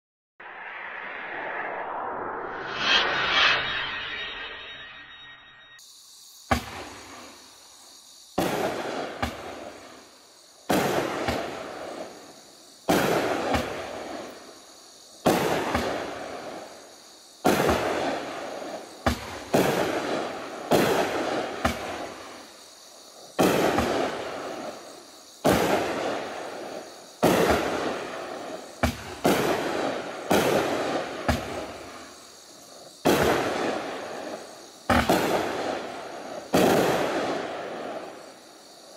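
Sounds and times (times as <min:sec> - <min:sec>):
rush of firework noise: 0:00.4 - 0:05.9, 0:08.3 - 0:38.9
fireworks reports: 0:33.0 - 0:38.3.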